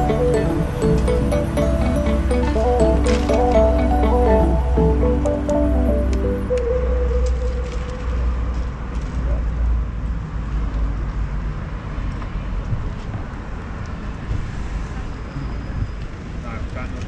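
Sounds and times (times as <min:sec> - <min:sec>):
traffic rumble: 0:00.0 - 0:17.0.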